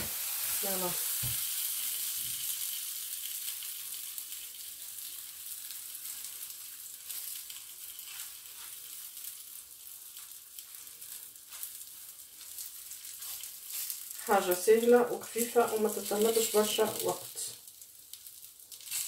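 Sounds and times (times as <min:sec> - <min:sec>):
faint crackles: 0:00.0 - 0:19.0
flatbread sizzling in frying pan: 0:00.0 - 0:19.0.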